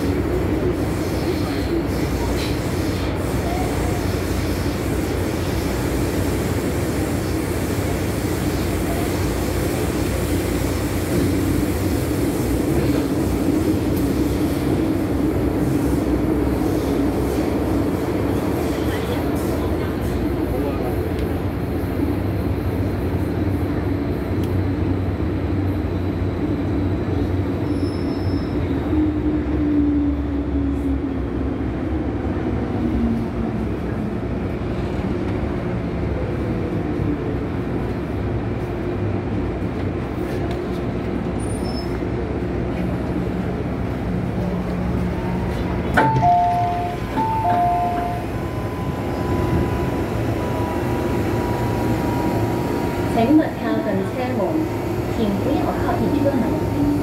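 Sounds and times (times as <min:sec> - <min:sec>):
two-tone door beeps: 0:46.0 - 0:49.7.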